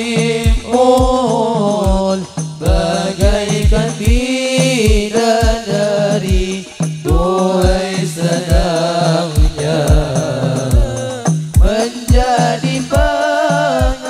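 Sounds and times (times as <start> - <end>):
frame drums beating: 0.0 - 14.0
men singing slow melody: 0.0 - 14.0.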